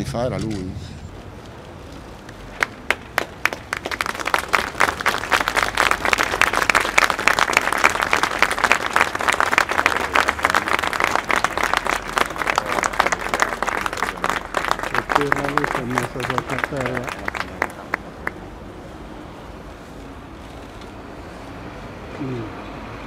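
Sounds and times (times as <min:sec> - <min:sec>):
crowd applauding: 0:02.6 - 0:18.5.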